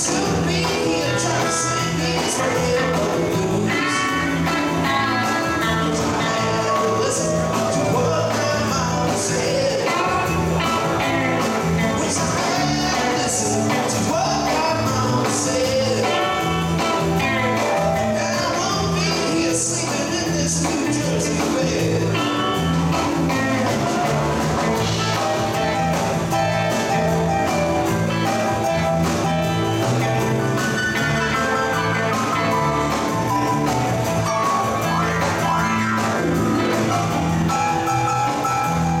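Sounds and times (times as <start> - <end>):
man singing lead vocal: 0.0 - 27.2
live blues rock band playing: 0.0 - 39.0.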